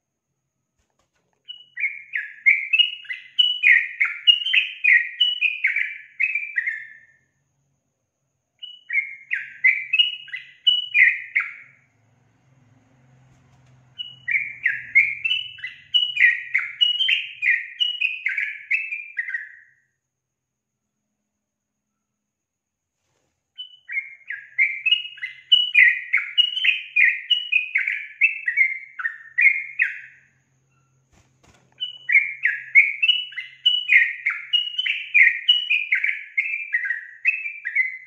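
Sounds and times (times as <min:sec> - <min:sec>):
bird singing short falling phrases: 0:01.0 - 0:07.1, 0:08.6 - 0:11.9, 0:12.5 - 0:19.8, 0:23.6 - 0:38.0.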